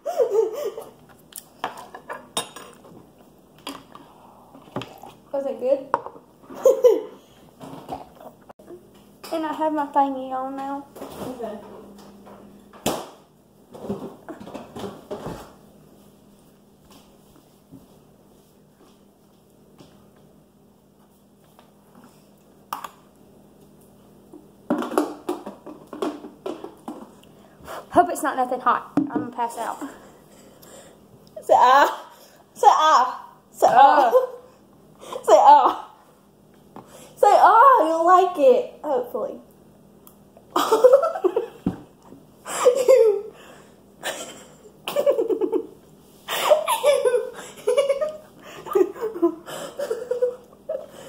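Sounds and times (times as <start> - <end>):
girl laughing: 0.0 - 1.0, 6.5 - 7.2, 40.6 - 41.6, 42.5 - 43.4, 44.0 - 51.0.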